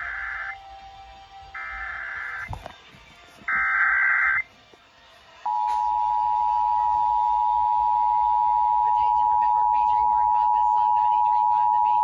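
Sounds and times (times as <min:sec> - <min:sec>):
two-tone attention signal: 0:05.5 - 0:12.0.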